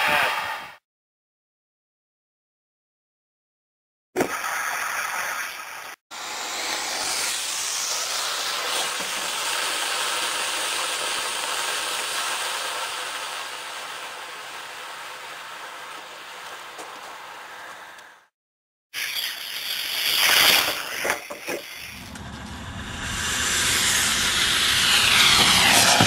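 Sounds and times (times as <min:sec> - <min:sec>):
rocket motor hissing: 0:06.1 - 0:16.0, 0:19.0 - 0:26.0.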